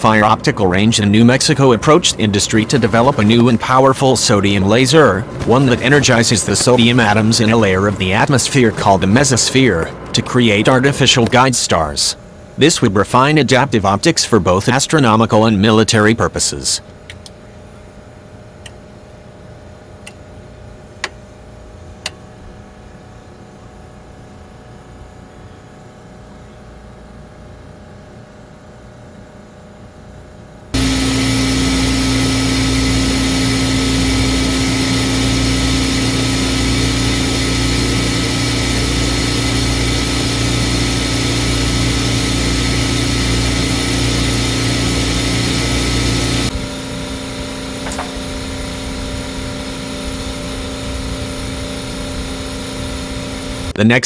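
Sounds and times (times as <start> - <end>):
machinery humming: 0.0 - 18.8, 30.6 - 54.0
click: 17.1 - 17.4, 18.6 - 18.8.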